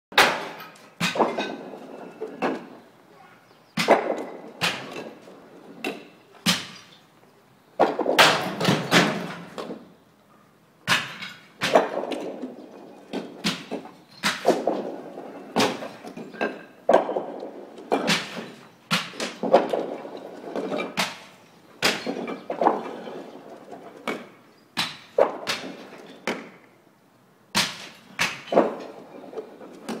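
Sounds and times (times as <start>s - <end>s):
roof tiles smashing: 10.9s - 26.2s.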